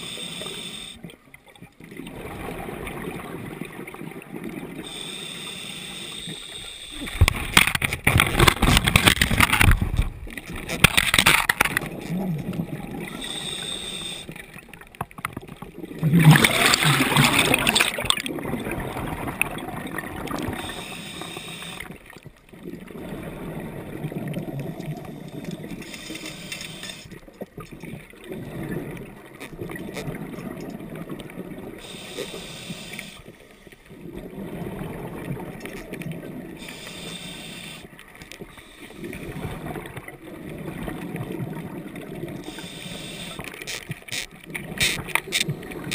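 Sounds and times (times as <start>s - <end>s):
scuba regulator hiss: 0.0s - 1.0s, 4.9s - 7.2s, 13.2s - 14.3s, 20.6s - 21.9s, 25.9s - 27.1s, 31.8s - 33.3s, 36.6s - 37.9s, 42.4s - 43.4s
gurgling exhaled bubbles: 1.8s - 5.0s, 6.9s - 26.4s, 27.5s - 32.0s, 33.9s - 36.8s, 38.5s - 42.8s.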